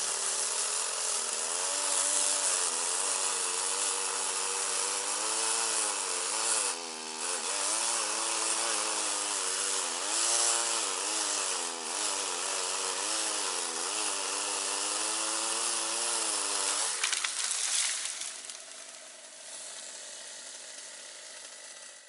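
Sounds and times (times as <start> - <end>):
chainsaw cutting branches: 0.0 - 22.0
crackling: 17.0 - 18.9.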